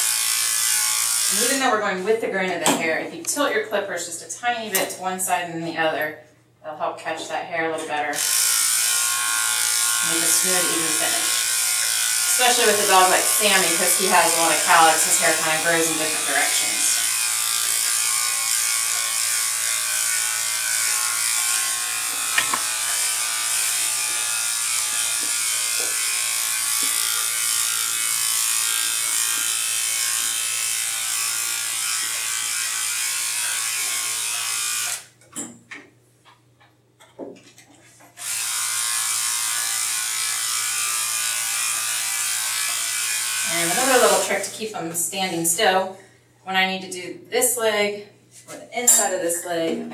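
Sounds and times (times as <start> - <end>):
electric clipper buzzing: 0.0 - 1.7, 8.1 - 35.2, 38.2 - 44.6.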